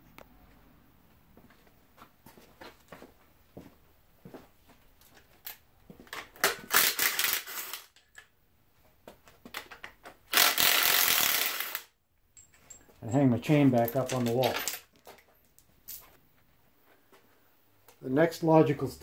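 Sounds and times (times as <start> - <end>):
chain clinking against metal: 12.3 - 16.2.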